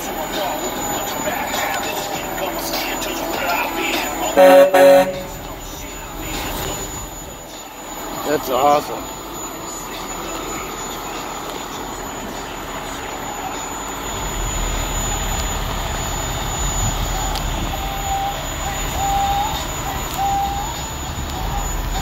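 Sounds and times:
diesel engine rumbling: 0.0 - 22.0.

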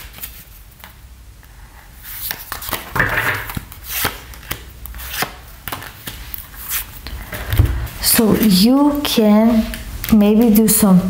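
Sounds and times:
cards sliding and rustling: 0.0 - 1.0, 2.0 - 7.7.

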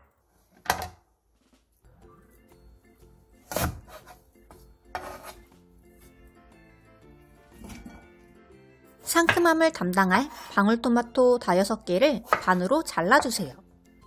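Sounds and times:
soft background music: 1.1 - 14.0
knife cutting on wooden board: 3.5 - 4.2, 4.9 - 5.5.

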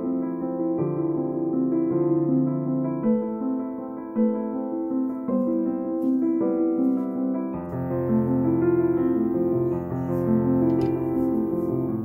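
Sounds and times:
piano melody: 0.0 - 12.0
low piano bass notes: 7.5 - 12.0.

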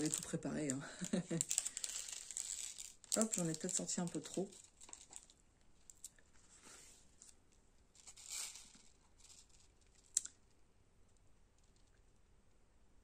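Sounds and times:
plastic film crinkling and rustling: 0.0 - 6.2, 7.2 - 10.3.

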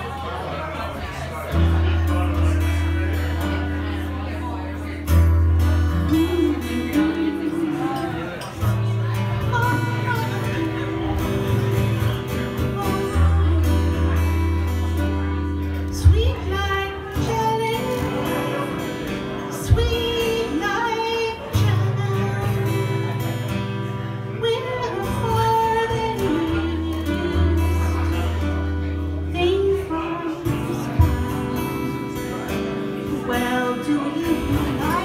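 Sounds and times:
guitar: 0.0 - 35.0
woman singing into microphone: 5.9 - 11.9, 12.5 - 14.6, 15.8 - 35.0.

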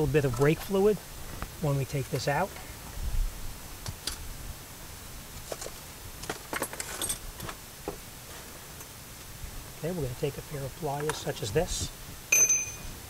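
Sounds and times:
metal tools clinking: 12.3 - 13.0.

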